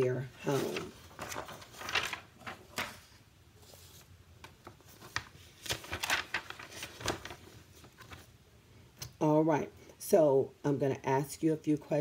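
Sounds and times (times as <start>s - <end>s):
paper rustling: 0.0s - 8.4s.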